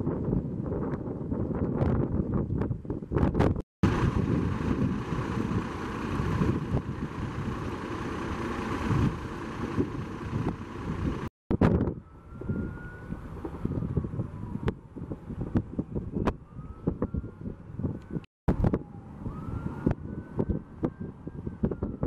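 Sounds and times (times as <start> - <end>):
wind buffeting microphone: 0.0 - 7.8, 8.6 - 22.0
fire engine running: 3.8 - 11.3, 16.5 - 22.0
faint siren-like tone: 11.8 - 15.1, 16.0 - 22.0.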